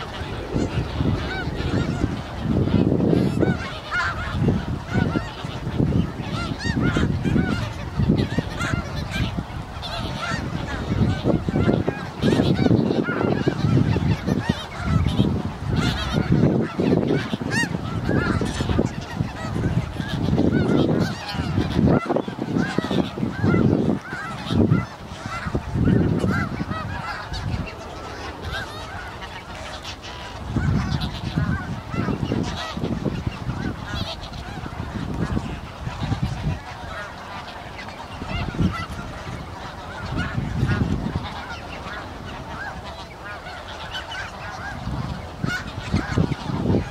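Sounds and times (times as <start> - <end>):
geese honking and yelping: 0.0 - 46.9.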